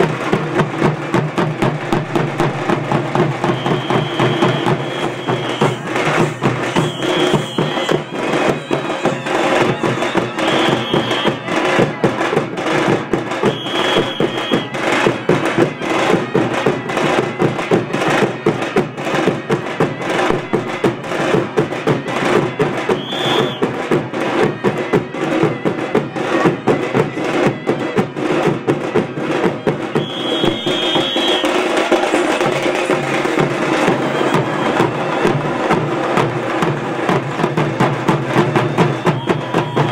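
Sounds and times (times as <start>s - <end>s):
frame drums beaten with sticks: 0.0s - 39.9s
short high-pitched tones: 1.9s - 11.5s.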